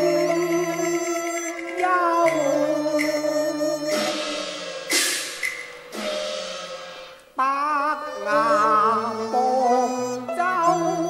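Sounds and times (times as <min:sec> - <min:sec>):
traditional instrumental melody: 0:00.0 - 0:11.0
loud cymbal crashes: 0:03.9 - 0:07.2.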